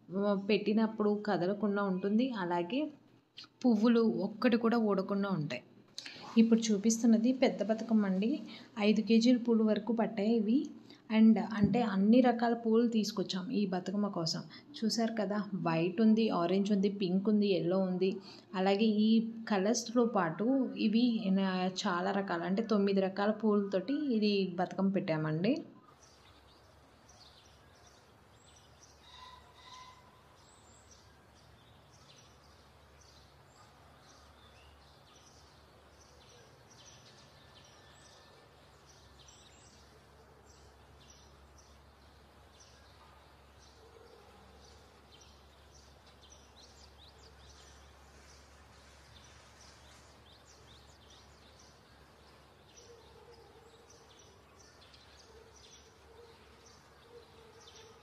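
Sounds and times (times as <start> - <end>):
small birds chirping: 0.2 - 11.8, 25.8 - 58.0.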